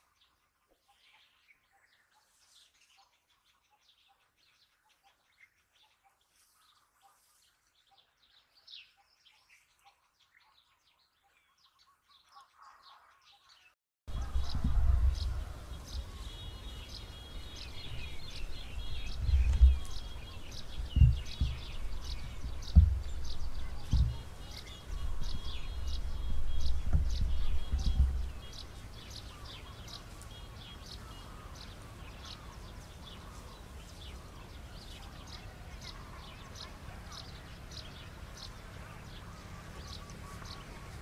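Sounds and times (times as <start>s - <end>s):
small birds chirping: 0.0s - 41.0s
gusty low rumble with thumps: 14.1s - 29.2s.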